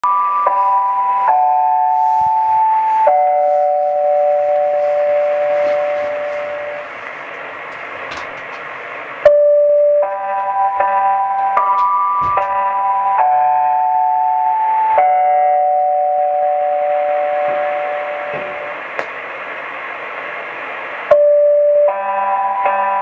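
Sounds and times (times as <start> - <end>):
music over am radio: 0.0 - 13.6, 14.2 - 18.9
radio hiss: 1.8 - 9.3, 17.3 - 21.2
radio crackles: 3.5 - 9.0.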